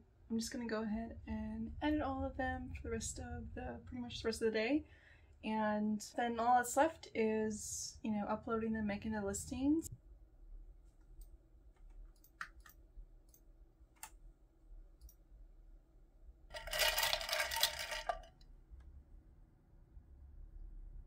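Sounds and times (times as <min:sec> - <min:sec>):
computer mouse clicks: 0:11.1 - 0:14.2.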